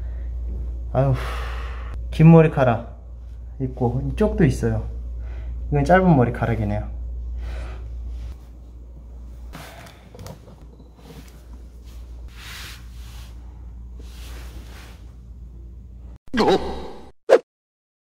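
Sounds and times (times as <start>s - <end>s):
low steady hum: 0.0s - 17.0s
towels and bedding rustling: 10.3s - 15.2s.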